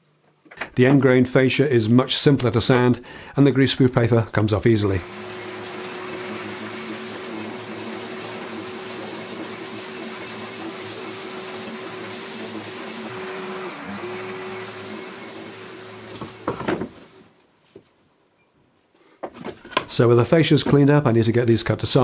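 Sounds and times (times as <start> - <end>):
orbital sander running: 4.9 - 17.3
boards knocking: 16.1 - 17.1.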